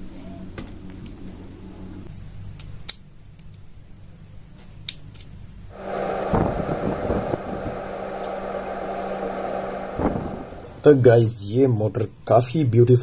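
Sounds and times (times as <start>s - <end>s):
steady low hum: 5.7s - 11.5s.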